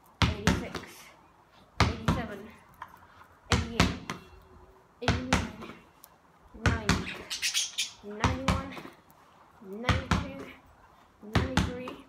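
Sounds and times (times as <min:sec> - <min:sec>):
basketball slapping wall and ground: 0:00.1 - 0:01.1, 0:01.8 - 0:02.6, 0:03.5 - 0:04.3, 0:05.0 - 0:05.8, 0:06.6 - 0:07.3, 0:08.0 - 0:09.0, 0:09.7 - 0:10.6, 0:11.2 - 0:12.0.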